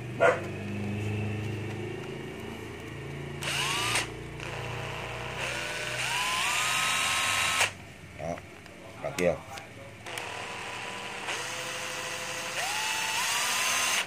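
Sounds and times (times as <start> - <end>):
cordless drill motor whining: 3.4 - 7.8, 10.0 - 14.0.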